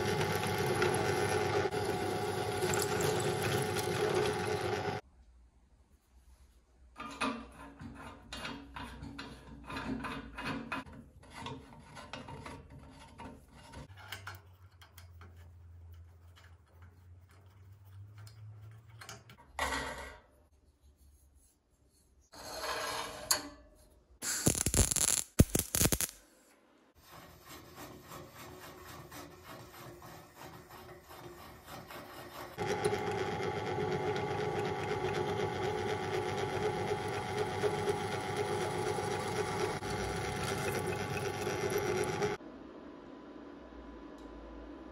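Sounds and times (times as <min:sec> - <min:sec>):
drill press motor running: 0:00.0 - 0:05.0, 0:32.6 - 0:42.4
loud metalwork bursts: 0:24.2 - 0:26.2.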